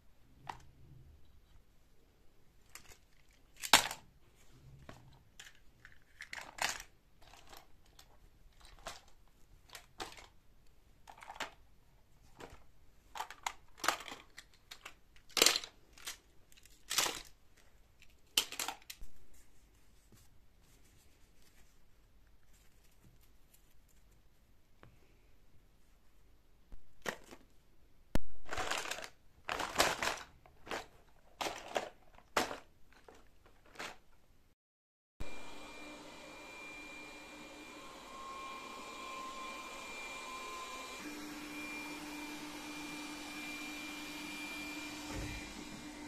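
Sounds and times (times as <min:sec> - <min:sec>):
packaging crinkling and tearing: 0:13.2 - 0:17.4, 0:28.4 - 0:34.0.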